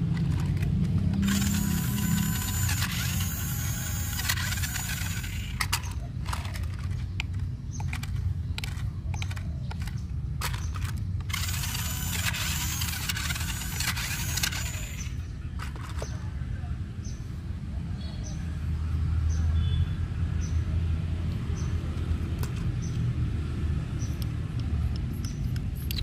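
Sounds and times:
plastic body clicks: 0.0 - 3.3, 4.1 - 16.2, 24.0 - 26.0
toy motors and gears whirring: 0.0 - 16.2, 24.0 - 26.0.

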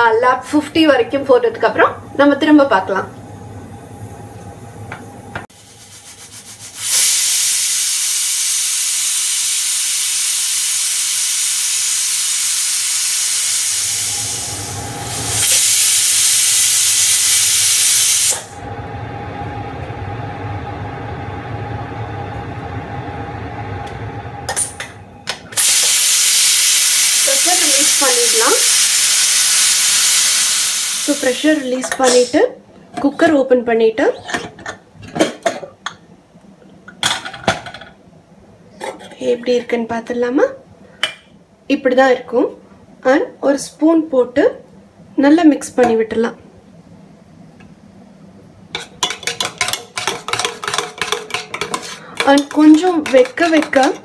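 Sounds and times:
pressure cooker steam hissing: 5.6 - 18.6, 25.6 - 32.3.

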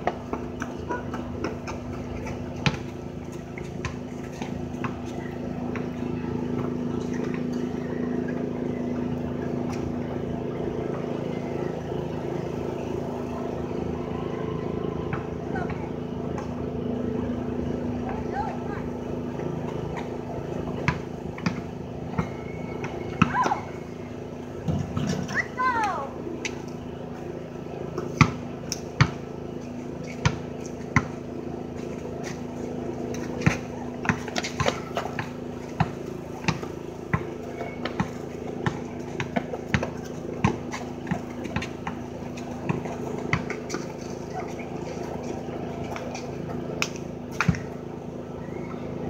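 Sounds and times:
basketball bouncing on concrete: 0.0 - 7.7, 20.7 - 23.6, 28.0 - 29.2, 30.1 - 31.2, 33.2 - 47.8
steady motor hum: 0.0 - 49.0.

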